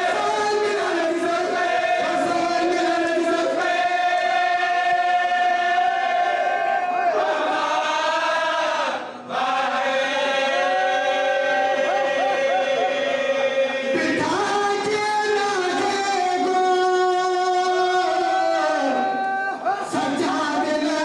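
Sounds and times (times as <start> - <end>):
men chanting together: 0.0 - 16.6.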